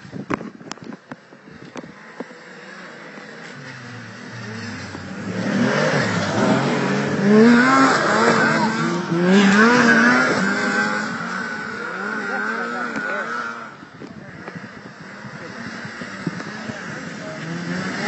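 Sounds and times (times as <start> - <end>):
snowmobile engines passing: 1.2 - 18.0.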